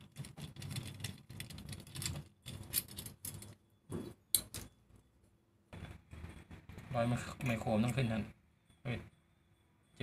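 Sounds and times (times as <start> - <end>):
clicks and rattles of metal terminals: 0.0 - 3.6, 4.3 - 4.8.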